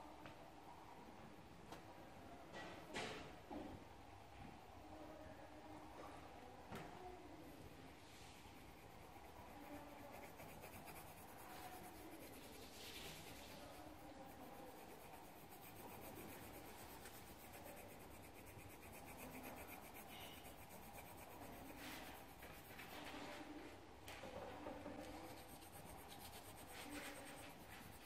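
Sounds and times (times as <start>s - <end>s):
pencil scratching on paper: 8.1s - 23.3s, 25.0s - 28.0s.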